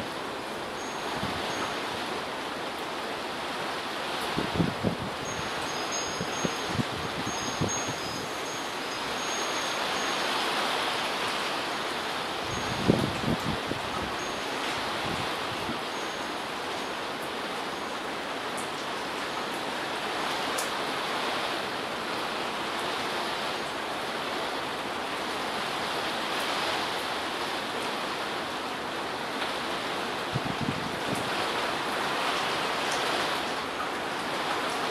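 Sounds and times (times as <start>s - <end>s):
heavy rain and wind: 0.0s - 34.9s
raindrops ticking nearby: 15.4s - 20.8s, 26.3s - 34.9s.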